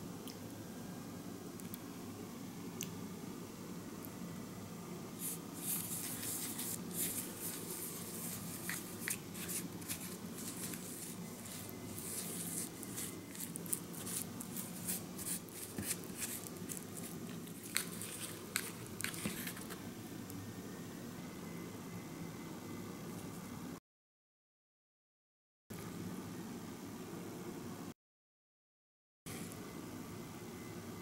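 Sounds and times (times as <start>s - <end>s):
steady low hum: 0.0s - 23.8s
plastic spoon scraping plastic tray: 5.2s - 19.8s.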